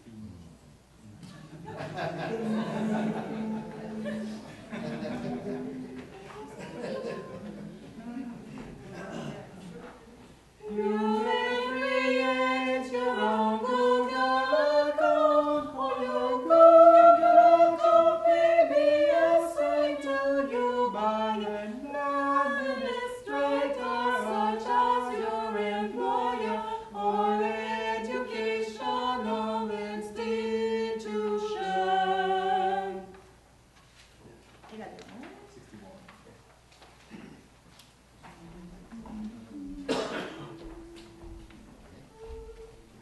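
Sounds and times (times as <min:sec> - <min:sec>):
a cappella choir singing: 0:01.5 - 0:07.9, 0:10.6 - 0:33.2, 0:38.4 - 0:41.8.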